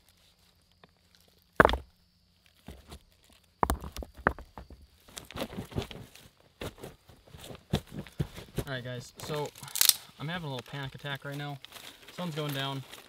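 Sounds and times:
rocks knocking together: 0:01.5 - 0:02.0, 0:02.6 - 0:10.0
footsteps in dry leaves: 0:09.3 - 0:13.0.

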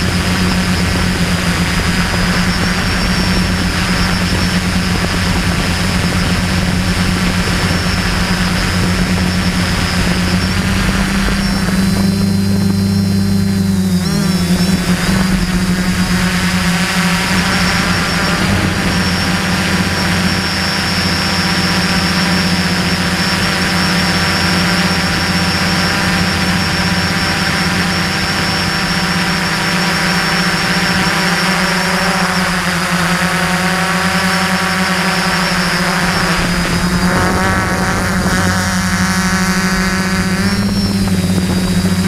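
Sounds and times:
drone motors humming and whining: 0:00.0 - 0:42.0.

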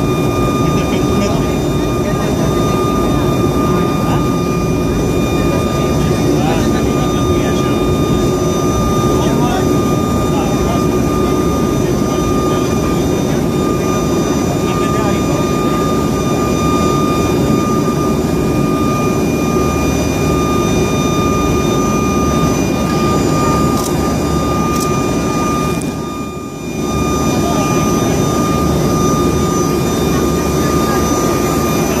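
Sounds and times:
turboprop engines droning: 0:00.0 - 0:32.0.

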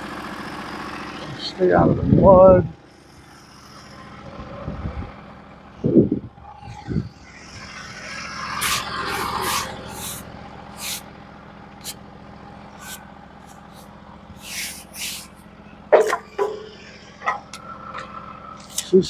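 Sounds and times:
sawmill engine idling: 0:00.0 - 0:19.0
hissing scraping strokes: 0:06.6 - 0:11.1, 0:12.7 - 0:18.9
sharp knocks: 0:15.9 - 0:18.1.

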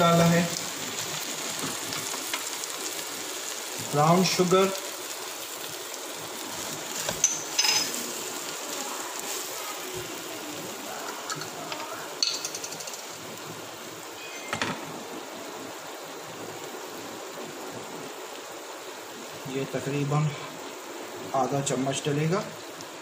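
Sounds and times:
food sizzling in a frying pan: 0:00.0 - 0:23.0
spatula scraping and clinking on pan: 0:07.0 - 0:08.0.

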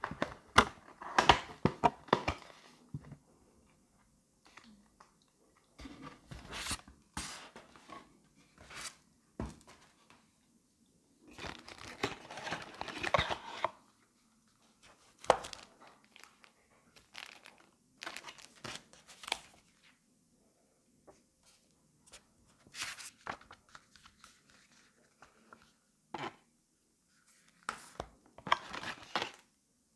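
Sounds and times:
plastic bags crinkling: 0:15.4 - 0:18.9.

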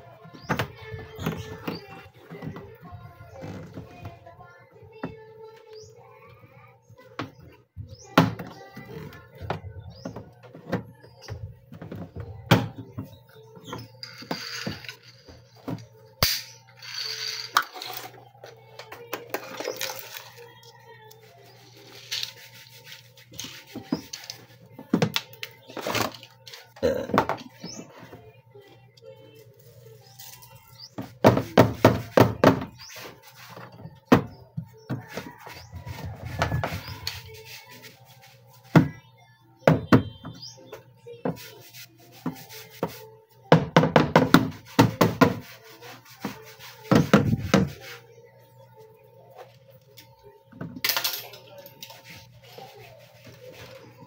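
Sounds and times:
rustling and scraping: 0:16.8 - 0:26.8, 0:34.6 - 0:38.7, 0:51.1 - 0:54.0.

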